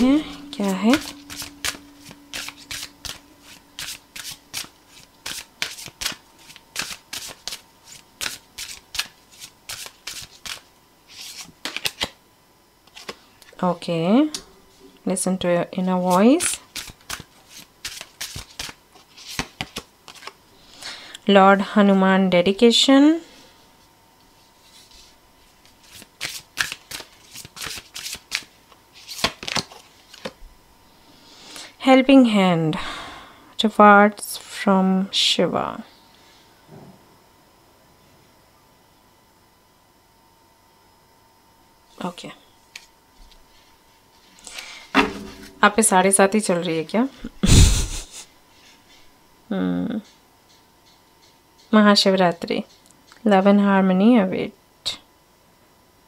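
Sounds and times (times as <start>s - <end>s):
cards being shuffled: 0.0s - 12.2s, 12.9s - 13.2s, 16.1s - 20.4s, 24.6s - 30.4s.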